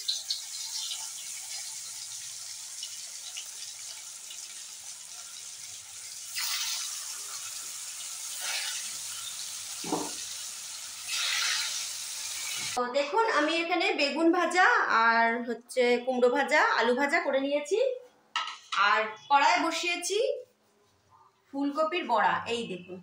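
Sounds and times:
deep-frying sizzle in oil: 0.0 - 12.8.

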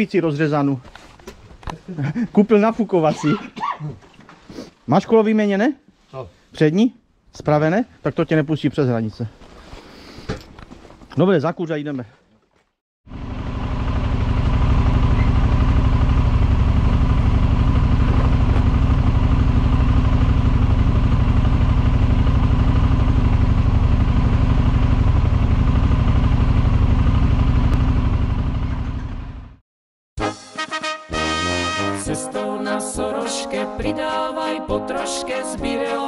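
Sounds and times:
motorcycle engine running: 13.1 - 29.6.

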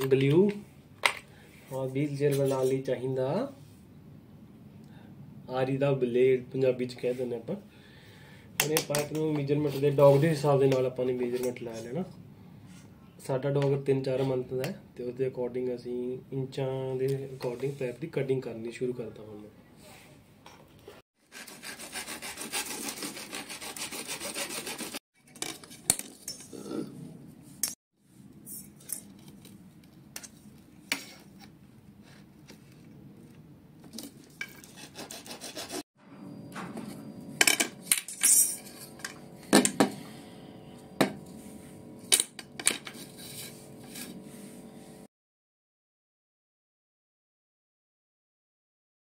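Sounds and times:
hacksaw blade sawing plastic pipe: 21.2 - 25.0, 34.4 - 35.8.

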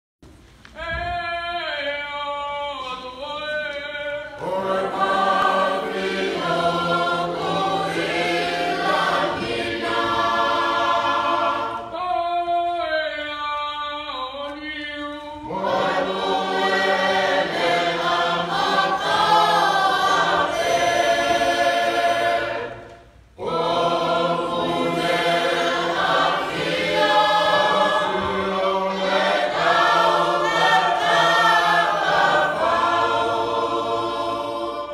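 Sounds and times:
choir singing a hymn unaccompanied: 2.8 - 13.3, 14.2 - 34.9.

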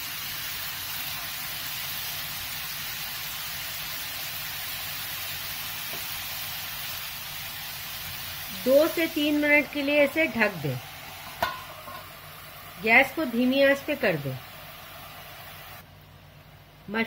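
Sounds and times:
mushrooms sizzling in frying pan: 0.0 - 17.0.

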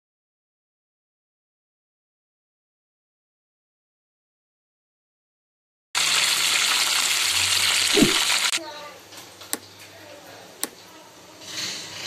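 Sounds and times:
loud even hiss: 6.0 - 8.6.

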